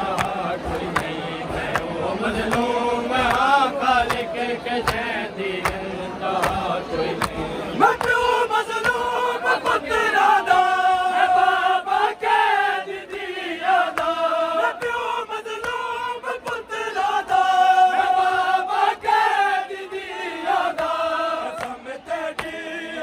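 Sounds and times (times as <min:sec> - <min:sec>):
men chanting in unison: 0:00.0 - 0:23.0
hand slaps on chests: 0:00.1 - 0:09.8, 0:13.1 - 0:16.7, 0:20.7 - 0:22.6.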